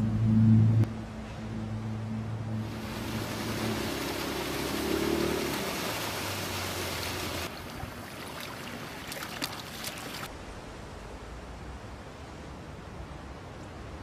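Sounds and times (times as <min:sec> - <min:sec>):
water noise: 0:00.0 - 0:10.5
steady hiss: 0:02.6 - 0:07.5
small outboard motor running: 0:02.7 - 0:07.5.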